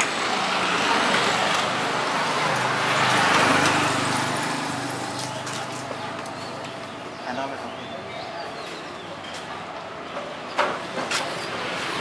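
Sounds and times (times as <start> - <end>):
road vehicle passing by: 0.0 - 7.2.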